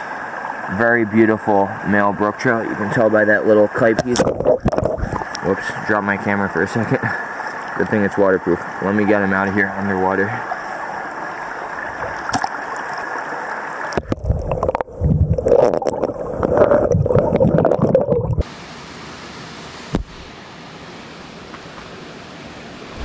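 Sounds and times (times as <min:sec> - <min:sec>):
creek water flowing: 0:00.0 - 0:23.0
underwater gurgling and bubbling: 0:04.0 - 0:05.7, 0:11.4 - 0:13.0, 0:13.8 - 0:18.5.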